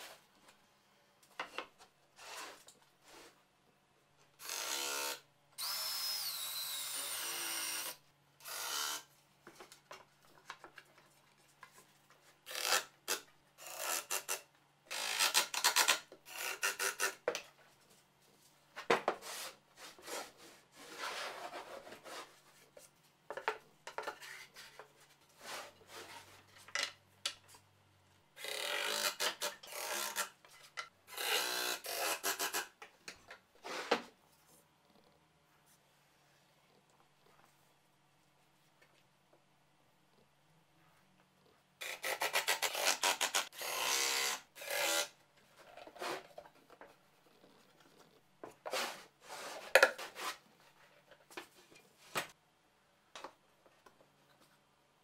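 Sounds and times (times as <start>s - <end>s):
power drill driving screws: 4.4s - 9.0s
scraping and rubbing on wood: 18.8s - 26.7s, 45.6s - 51.8s.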